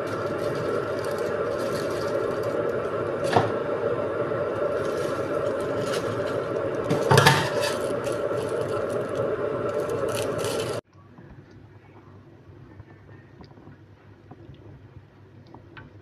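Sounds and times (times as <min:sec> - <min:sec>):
plastic bag crinkling: 0:00.0 - 0:03.4, 0:04.5 - 0:10.8
steady droning hum: 0:00.0 - 0:16.0.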